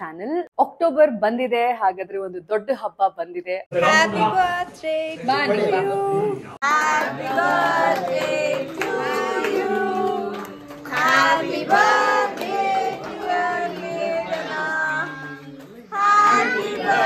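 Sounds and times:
group of people singing: 3.7 - 17.0.

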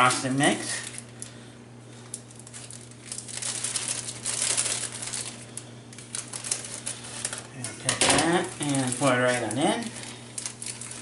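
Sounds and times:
paper pouch crinkling: 0.0 - 1.4, 2.0 - 11.0.

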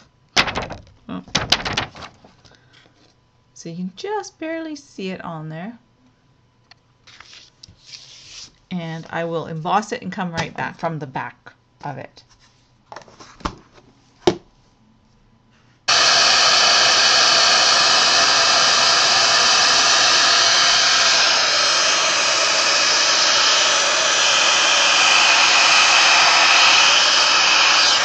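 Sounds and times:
heat gun blowing hot air: 15.9 - 28.0.

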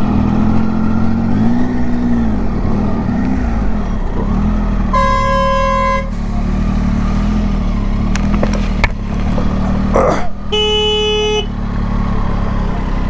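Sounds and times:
motorcycle engine revving: 0.0 - 13.0
horn blast: 4.9 - 6.3.

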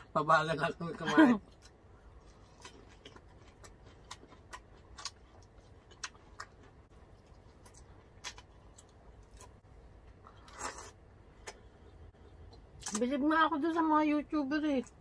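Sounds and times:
faint chewing: 1.4 - 13.1.

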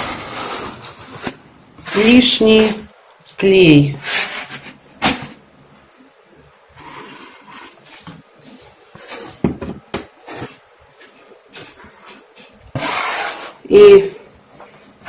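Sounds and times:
spatula scraping wallpaper: 0.0 - 2.9, 3.9 - 4.8, 6.7 - 9.5, 10.2 - 14.0.

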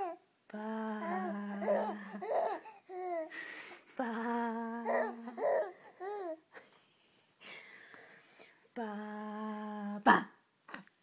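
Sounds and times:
baby cooing: 0.0 - 0.2, 1.0 - 3.3, 4.8 - 6.4
adult sing-song voice: 0.5 - 2.5, 3.9 - 5.7, 8.7 - 10.3.

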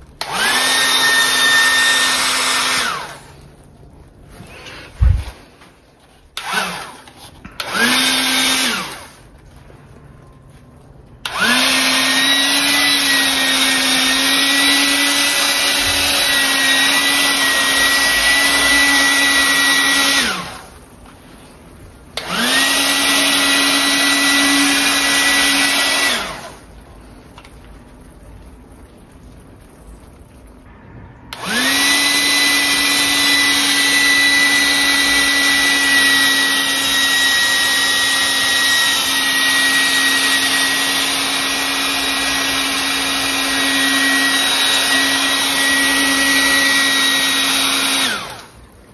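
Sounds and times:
bubble gun motor whirring: 6.4 - 9.2.

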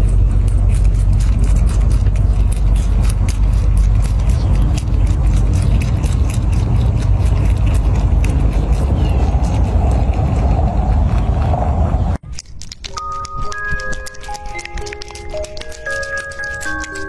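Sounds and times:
steady low rumble: 0.0 - 12.2
rabbit chewing cabbage: 0.0 - 17.0.

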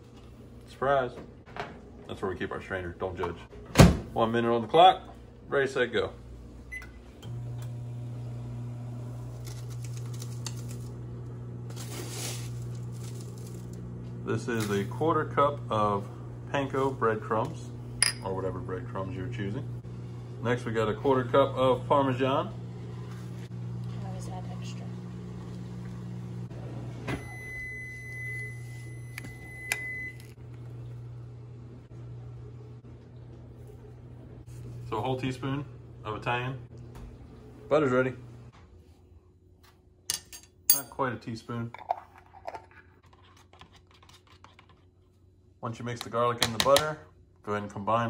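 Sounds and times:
microwave oven humming: 0.0 - 40.0
microwave oven beep: 6.7 - 9.1, 26.6 - 30.4
metal cup scooping breadcrumbs: 11.7 - 13.6.

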